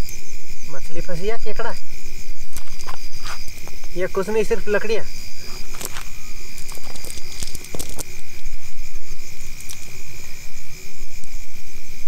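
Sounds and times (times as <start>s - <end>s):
night insects chirring: 0.0s - 12.0s.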